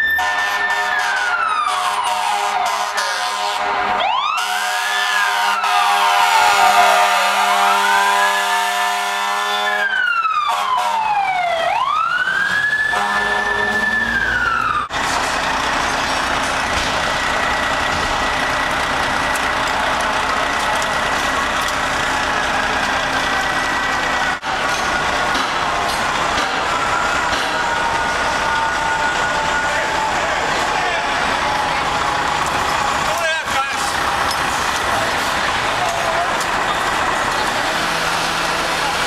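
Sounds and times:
mechanical siren wailing: 0.0s - 15.0s, 25.0s - 33.1s
deep horn blast: 0.2s - 9.9s, 12.9s - 13.9s
engine rumbling and hissing: 13.3s - 39.0s.

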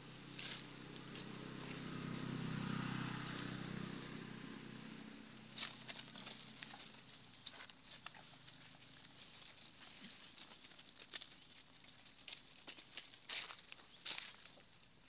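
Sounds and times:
vehicle engine passing: 0.0s - 9.7s
dry leaves crackling: 0.0s - 15.0s.

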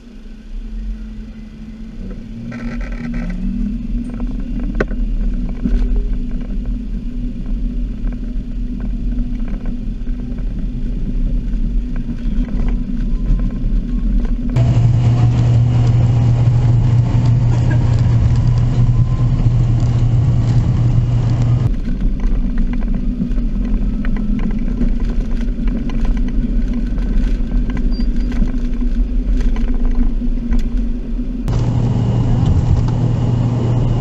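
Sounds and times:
faint rising whine: 0.0s - 22.1s, 31.3s - 34.0s
jet engines rumbling: 0.0s - 25.7s, 31.1s - 34.0s.

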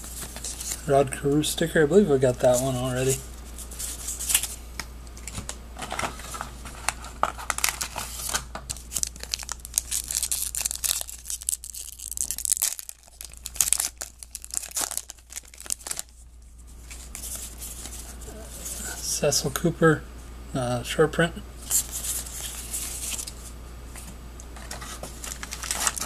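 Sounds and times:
wrapper crinkling and tearing: 3.8s - 4.6s, 5.2s - 16.2s, 21.7s - 23.4s, 24.6s - 26.0s.

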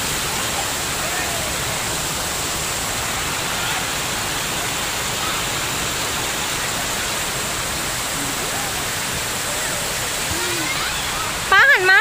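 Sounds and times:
rush of falling water: 0.0s - 12.0s.

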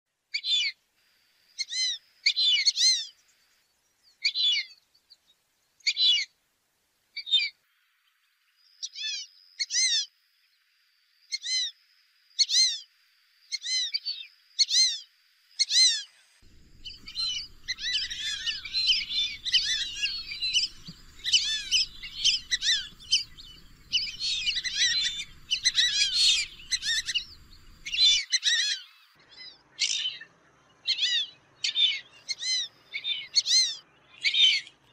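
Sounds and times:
faint low noise: 14.2s - 28.4s
ducks whistling: 16.5s - 28.9s.

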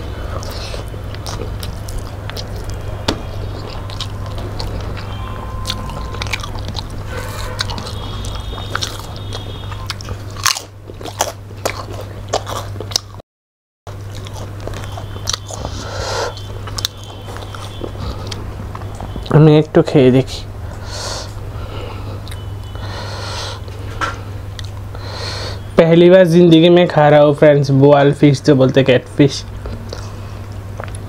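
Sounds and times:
steady low hum: 0.0s - 13.2s, 13.9s - 31.0s
chewing and biting: 0.2s - 13.2s, 13.9s - 19.4s, 23.6s - 24.9s, 29.6s - 31.0s.

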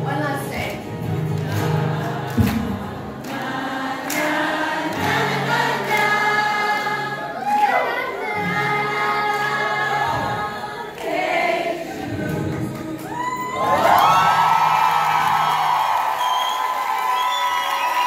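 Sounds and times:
acoustic guitar: 0.0s - 16.6s
group of voices singing: 1.2s - 14.3s.

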